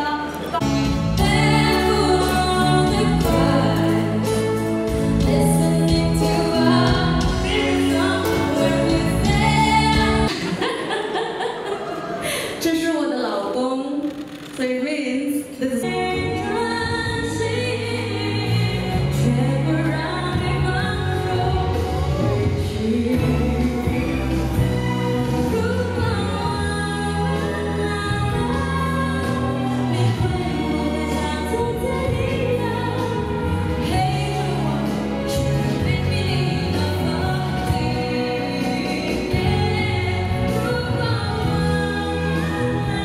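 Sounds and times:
woman singing into microphone: 0.0s - 11.2s, 12.6s - 43.0s.

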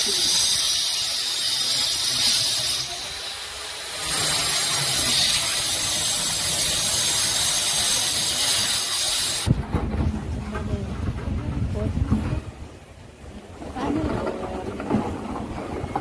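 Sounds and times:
spray gun hissing: 0.0s - 9.5s.

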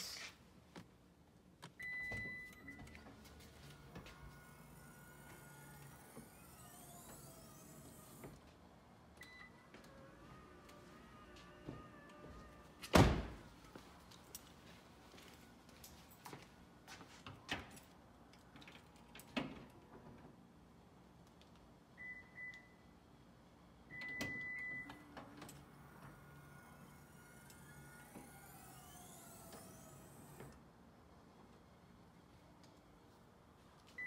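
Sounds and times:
liftgate motor whine: 1.9s - 8.4s, 9.2s - 13.8s, 23.9s - 30.7s.

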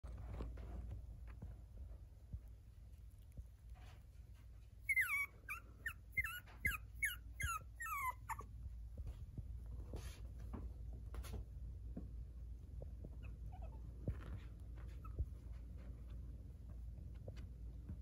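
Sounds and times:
puppy whining: 4.8s - 8.6s, 13.0s - 15.8s.

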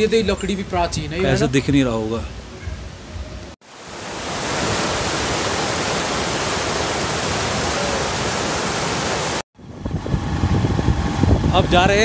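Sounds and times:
river rushing through rapids: 3.6s - 9.4s.

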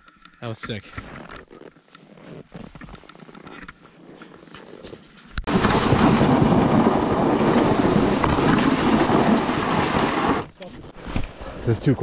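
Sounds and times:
sled scraping across snow: 2.0s - 11.4s.

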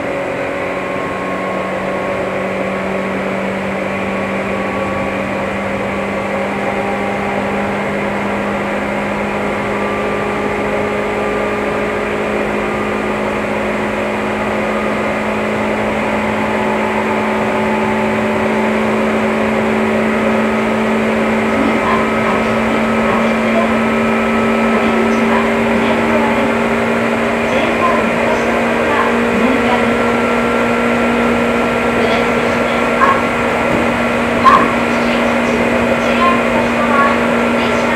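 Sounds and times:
electric train motor hum: 0.0s - 37.9s
train rolling noise: 0.0s - 37.9s.

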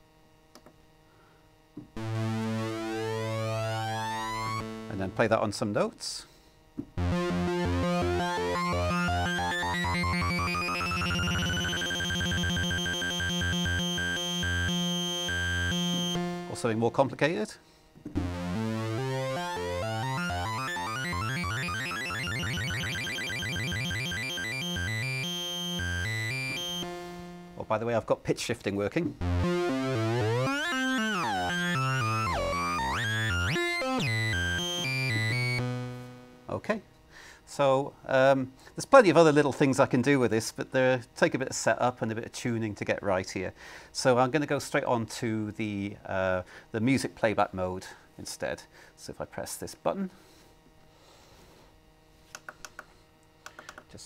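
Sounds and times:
buzzy synthesiser arpeggio: 1.9s - 5.4s, 7.0s - 17.4s, 18.1s - 28.0s, 29.2s - 36.6s
pulsing synth bass: 2.0s - 5.1s, 7.0s - 16.6s, 18.2s - 27.6s, 29.2s - 36.1s.

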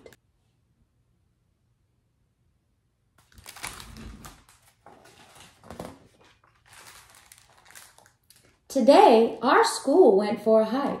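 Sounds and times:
book pages rustling and flapping: 3.2s - 8.6s.

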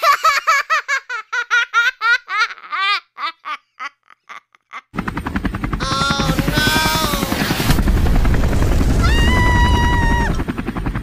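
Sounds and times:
high-pitched laughter: 0.0s - 5.0s
loud rushing noise: 7.4s - 10.3s.

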